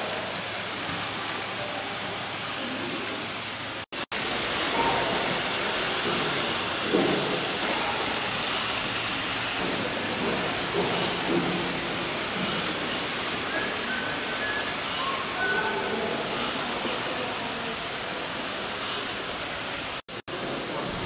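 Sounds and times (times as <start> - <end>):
faint murmur of voices: 13.4 - 21.0.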